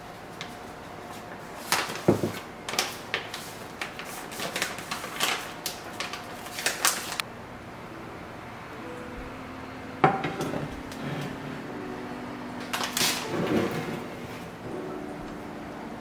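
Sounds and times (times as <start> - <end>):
plastic pouch crinkling: 2.7 - 7.2.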